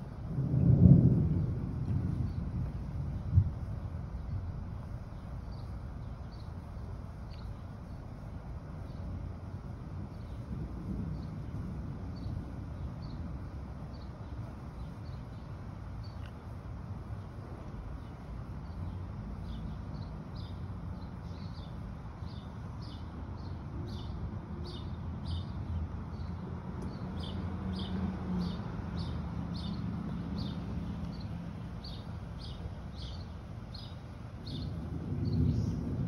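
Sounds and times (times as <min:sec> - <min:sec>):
low rumble: 0:00.0 - 0:06.1
small bird chirping: 0:05.1 - 0:09.1, 0:13.9 - 0:16.6, 0:18.0 - 0:35.9.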